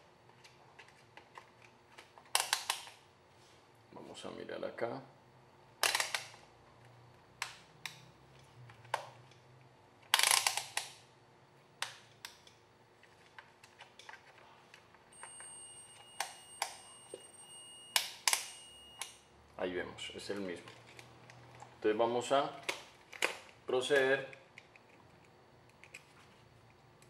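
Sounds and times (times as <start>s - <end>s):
faint high whine: 14.4s - 20.7s.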